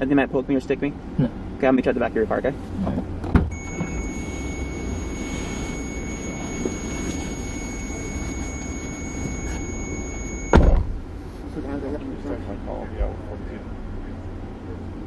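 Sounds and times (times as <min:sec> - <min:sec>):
car warning chime tone: 0:03.5 - 0:10.6.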